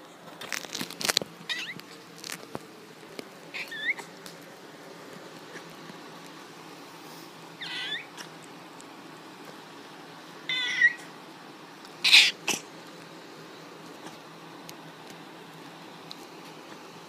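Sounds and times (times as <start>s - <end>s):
cat squeaking: 1.5s - 1.8s, 3.5s - 4.1s, 7.6s - 8.3s, 10.5s - 11.1s, 12.0s - 12.6s.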